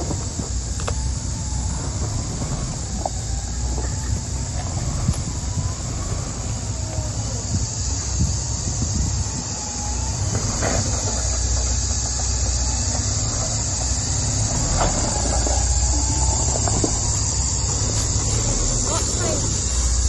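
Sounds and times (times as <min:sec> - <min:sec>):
cicada chorus: 0:00.0 - 0:20.0
truck engine running low: 0:00.0 - 0:20.0
suspension knocks and creaks: 0:10.1 - 0:20.0.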